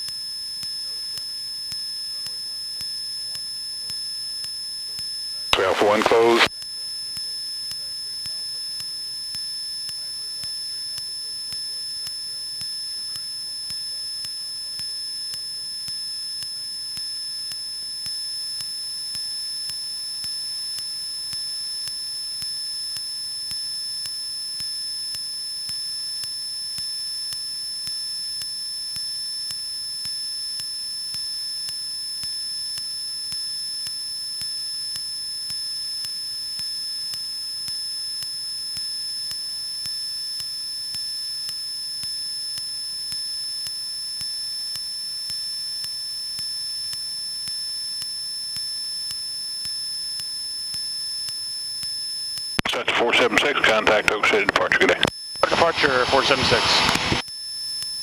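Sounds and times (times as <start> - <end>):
high-pitched electrical whine: 54.2 - 58.0
aircraft engine: 55.5 - 57.2.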